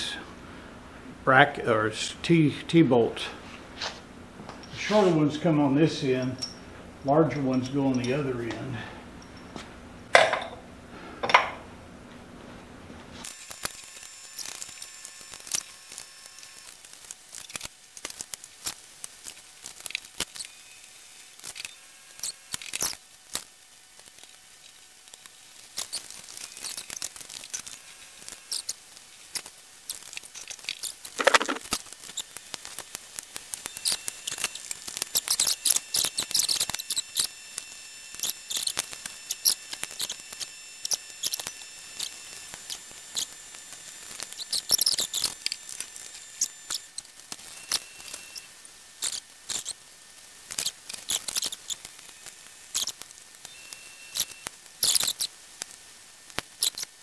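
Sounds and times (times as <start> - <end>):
metal scrape: 4.7 - 5.3.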